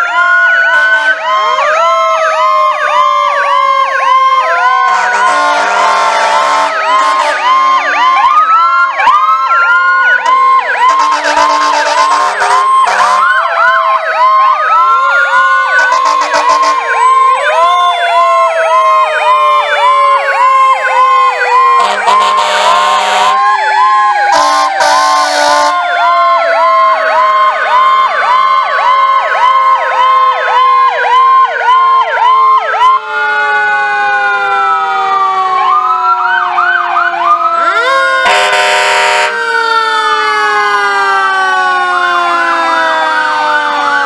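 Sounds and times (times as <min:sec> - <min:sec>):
sirens rising and winding down: 0:00.0 - 0:44.0
sirens yelping: 0:00.0 - 0:44.0
horn blasts: 0:04.9 - 0:07.5, 0:10.8 - 0:13.3, 0:15.8 - 0:16.9, 0:21.8 - 0:23.4, 0:24.3 - 0:25.8, 0:38.2 - 0:39.3.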